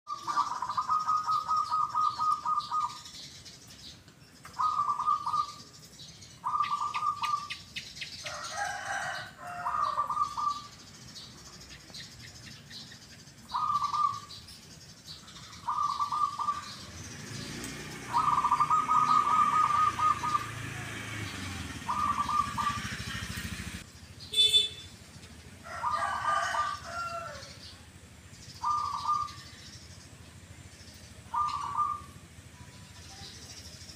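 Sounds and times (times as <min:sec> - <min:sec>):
doves cooing: 0:00.1 - 0:03.1, 0:04.5 - 0:05.7, 0:06.4 - 0:07.7, 0:08.3 - 0:10.8, 0:13.5 - 0:14.4, 0:15.3 - 0:23.8, 0:28.6 - 0:29.6, 0:31.2 - 0:32.3
birds chirping: 0:00.1 - 0:33.9.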